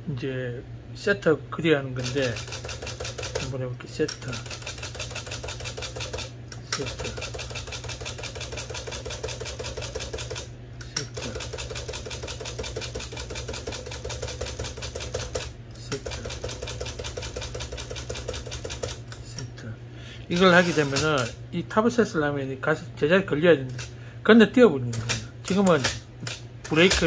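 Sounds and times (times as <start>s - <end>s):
typewriter escapement ticking: 2.0s - 3.5s, 4.2s - 10.4s.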